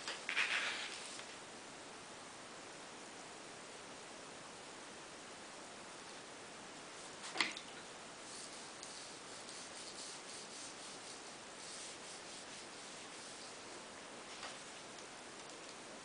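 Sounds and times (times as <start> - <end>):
paintbrush rubbing on paper: 0.3 - 1.2, 8.2 - 14.8.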